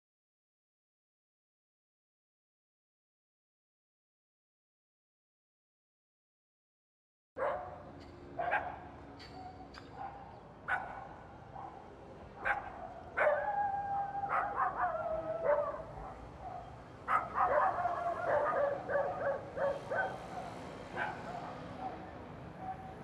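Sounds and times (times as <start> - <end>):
dogs barking: 7.4 - 7.8, 8.4 - 23.0
dog yelping: 10.0 - 11.8, 12.4 - 22.0.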